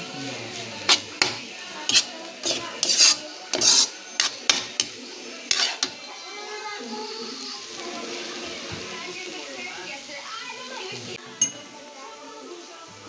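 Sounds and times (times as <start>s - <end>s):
metal spoon scraping a wok: 0.8s - 6.0s.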